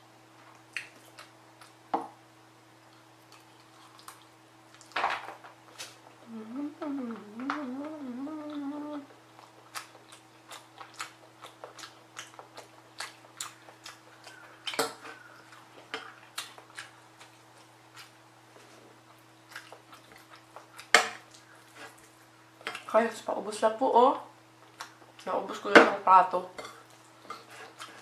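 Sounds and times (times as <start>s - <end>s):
close-up chewing with wet clicks: 0.5s - 1.8s, 2.8s - 5.0s, 8.5s - 18.2s, 19.0s - 22.9s, 24.6s - 25.3s.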